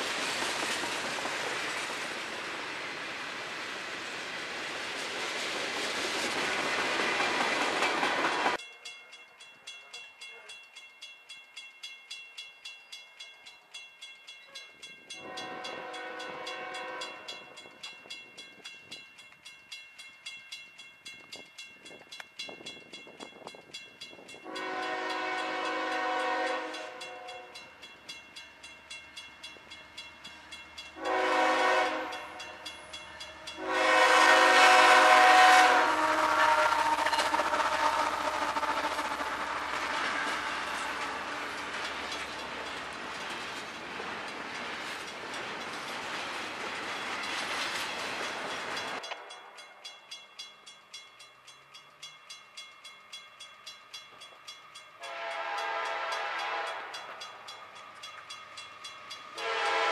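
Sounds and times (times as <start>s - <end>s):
crossing bell ringing: 7.8s - 42.9s, 46.8s - 59.9s
locomotive horn blasts: 15.2s - 17.4s, 24.4s - 27.6s, 31.0s - 32.6s, 33.2s - 40.9s, 55.0s - 57.1s, 59.4s - 59.9s.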